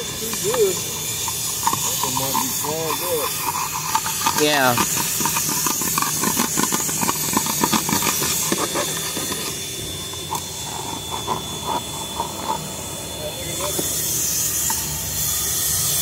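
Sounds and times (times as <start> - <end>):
vacuum hose hissing with whine: 0.0 - 16.0
nozzle clicking and rattling on mat: 1.2 - 9.5.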